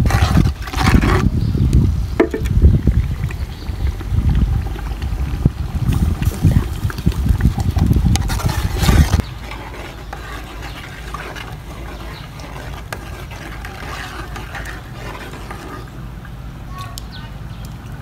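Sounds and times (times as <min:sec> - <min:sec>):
wind buffeting microphone: 0:00.0 - 0:17.7
ladle scraping metal pot: 0:08.1 - 0:16.2.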